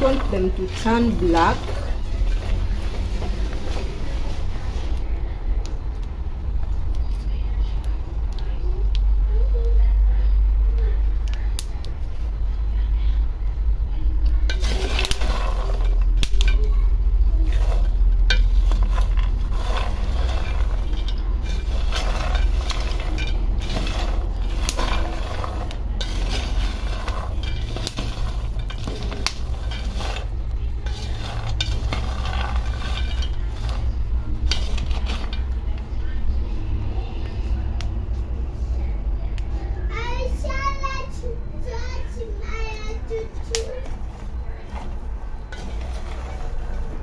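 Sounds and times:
peanuts stirred in pan: 0.0s - 9.1s, 14.1s - 37.0s, 43.3s - 47.0s
steady low hum: 0.0s - 47.0s.

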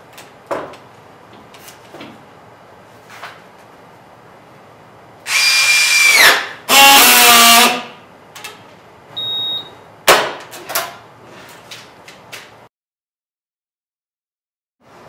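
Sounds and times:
short high beep: 9.2s - 9.7s.

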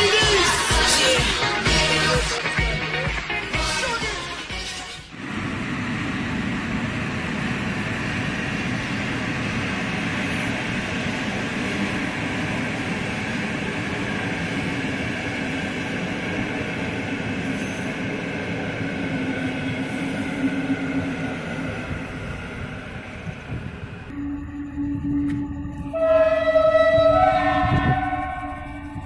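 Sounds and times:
train wheels rumbling on rails: 5.1s - 24.1s, 24.9s - 29.0s.

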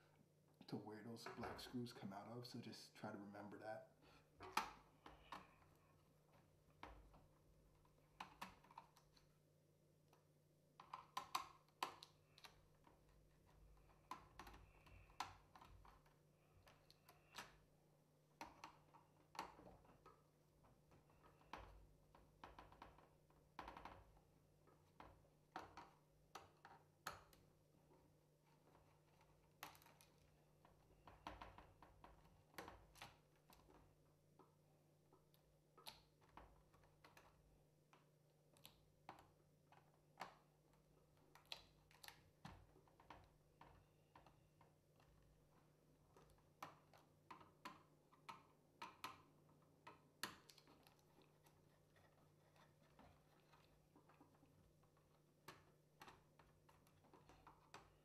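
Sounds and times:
handling plastic and metal parts: 38.6s - 58.0s.

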